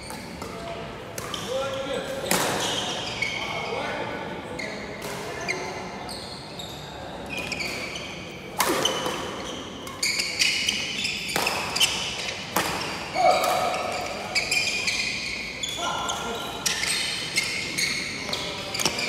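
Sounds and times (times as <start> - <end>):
sneakers squeaking on wooden floor: 1.3 - 3.8, 4.6 - 8.2, 8.8 - 19.0
racket hitting shuttlecock: 8.6 - 14.0.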